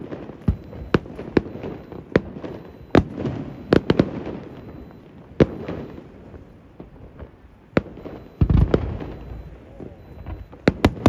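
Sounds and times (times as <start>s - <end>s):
fireworks bangs with echo: 0.0s - 11.0s.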